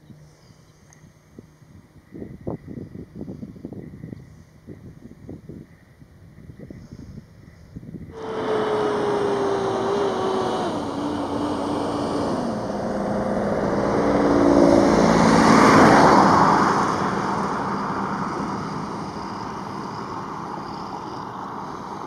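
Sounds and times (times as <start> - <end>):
jet engines roaring overhead: 8.2 - 22.0.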